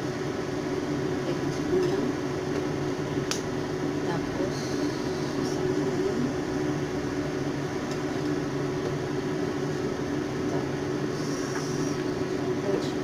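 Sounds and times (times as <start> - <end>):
small motor humming: 10.5 - 12.4.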